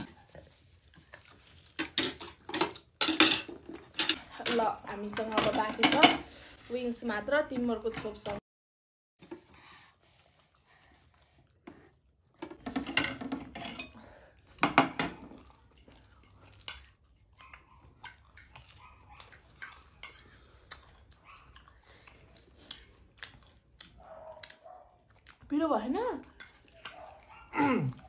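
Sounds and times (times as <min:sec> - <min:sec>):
utensils clicking on dishes: 0:01.7 - 0:06.2.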